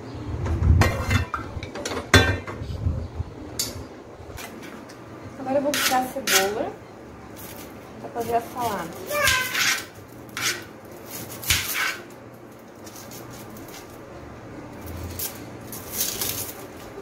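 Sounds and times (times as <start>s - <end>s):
peeling onion skins crackling: 7.3s - 17.0s.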